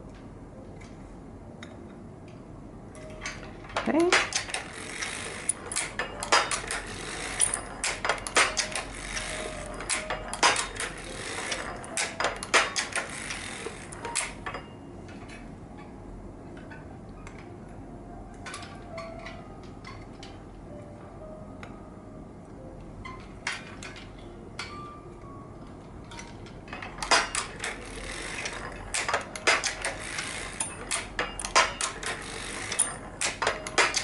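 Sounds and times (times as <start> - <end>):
knitting machine clicking and clattering: 3.0 - 15.6, 18.4 - 20.5, 23.0 - 25.0, 25.6 - 34.0.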